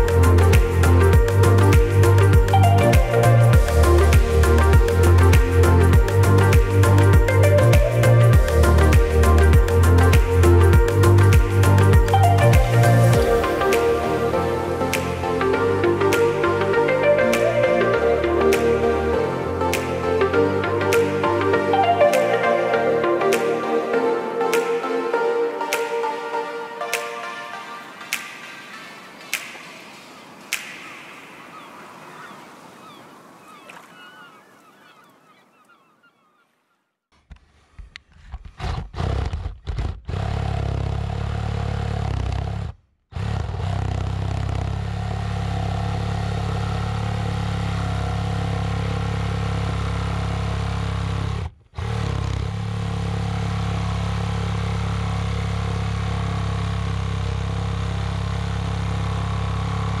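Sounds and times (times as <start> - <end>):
background music: 0.0 - 32.4.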